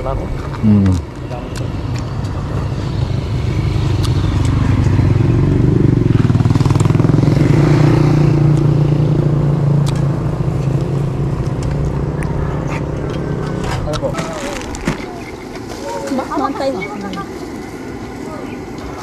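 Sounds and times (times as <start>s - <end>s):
vehicle engine running: 1.7s - 15.6s.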